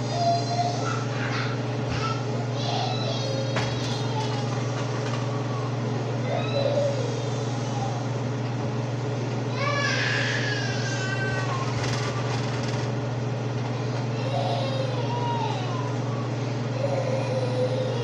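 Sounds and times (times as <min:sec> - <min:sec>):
stove hum: 0:00.0 - 0:18.0
short clatter: 0:11.6 - 0:13.0.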